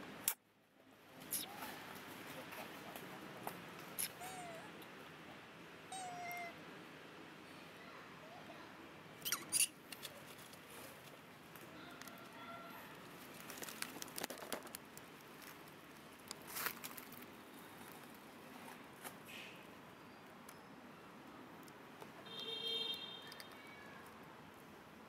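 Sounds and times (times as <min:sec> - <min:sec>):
monkeys squeaky calls: 0:01.3 - 0:01.6, 0:03.9 - 0:04.7, 0:05.9 - 0:06.5, 0:09.2 - 0:09.8.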